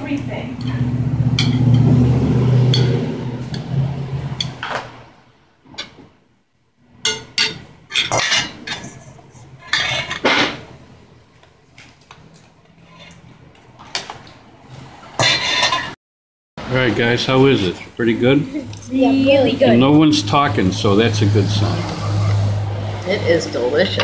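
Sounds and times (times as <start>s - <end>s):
metal utensils clinking on dishes: 2.7s - 3.7s, 7.0s - 10.6s, 15.2s - 16.0s
low hum: 18.5s - 24.0s.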